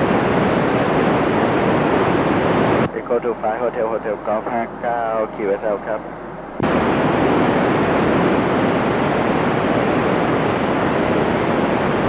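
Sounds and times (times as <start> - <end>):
radio static hiss: 0.0 - 9.4.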